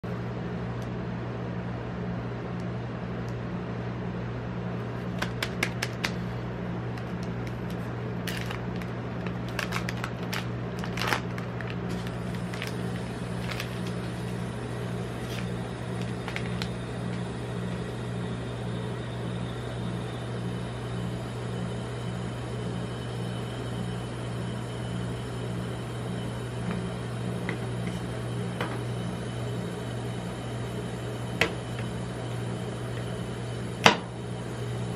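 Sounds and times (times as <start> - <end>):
machine low hum: 0.0 - 34.9
wrapper crinkling: 7.5 - 14.2.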